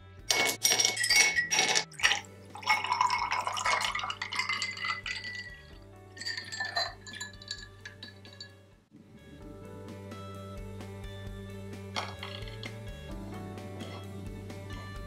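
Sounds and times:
background music: 0:00.0 - 0:15.0
ice clinking against glass: 0:00.3 - 0:08.6, 0:12.0 - 0:12.8
drink poured into glass: 0:00.6 - 0:08.5.

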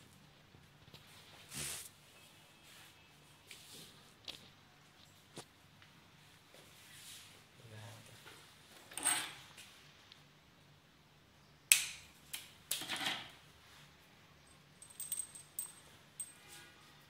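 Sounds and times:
light metallic clinks: 0:14.4 - 0:16.7.

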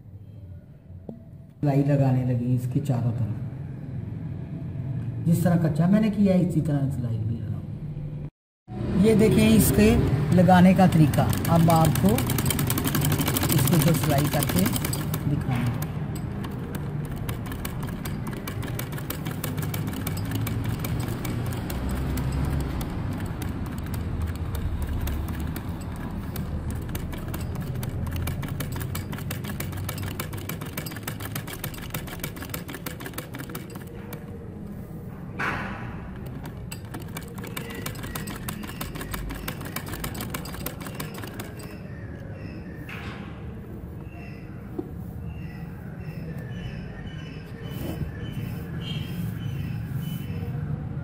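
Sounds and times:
sewing machine stitching: 0:09.7 - 0:34.3, 0:36.1 - 0:41.8.

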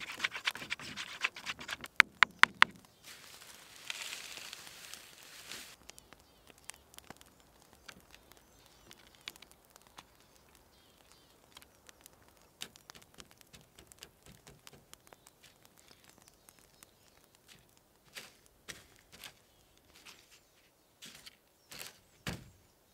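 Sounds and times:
faint small clicks and taps: 0:05.8 - 0:20.4.

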